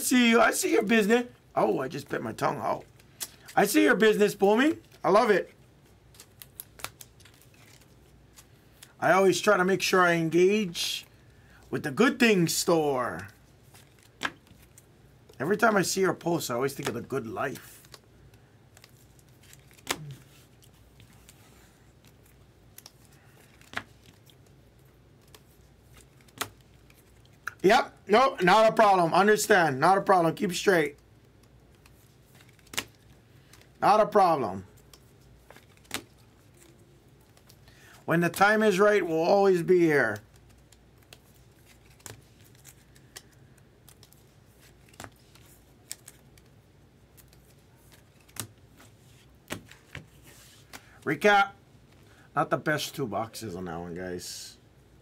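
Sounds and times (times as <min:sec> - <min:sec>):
cards rustling: 0:00.1 - 0:52.2
trading cards clicking and scraping: 0:16.7 - 0:27.6, 0:31.2 - 0:33.8, 0:40.1 - 0:51.0.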